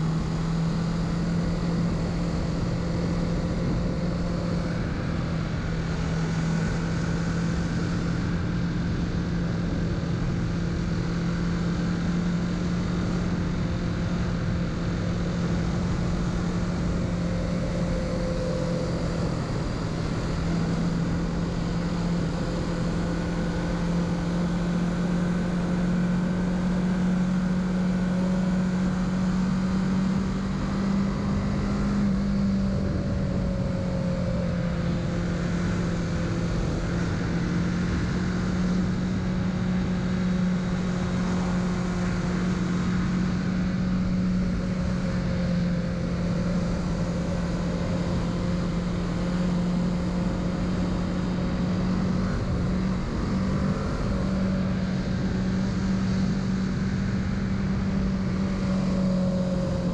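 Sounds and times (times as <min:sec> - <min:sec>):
motorcycle engine running: 0:00.0 - 0:59.9.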